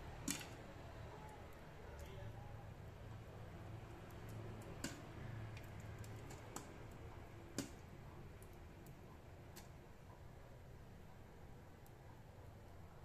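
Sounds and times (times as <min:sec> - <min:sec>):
popcorn popping: 0:04.2 - 0:06.8, 0:07.5 - 0:07.9.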